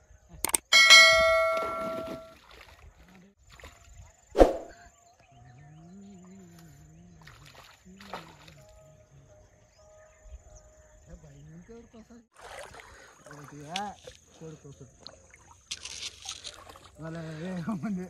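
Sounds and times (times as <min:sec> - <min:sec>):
bell-like chime: 0:00.7 - 0:02.4
water splashing in river: 0:01.6 - 0:03.8, 0:12.3 - 0:17.0.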